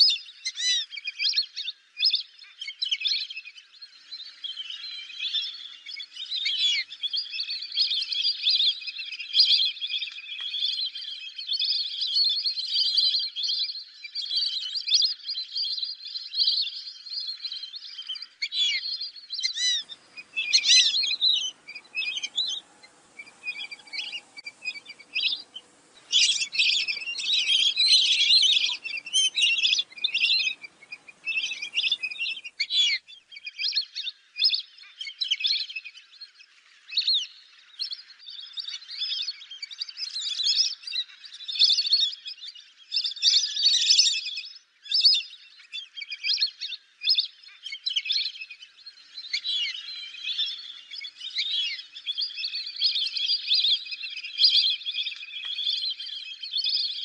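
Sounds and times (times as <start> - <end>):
ducks whistling: 19.5 - 33.0
faint background hiss: 19.8 - 32.9.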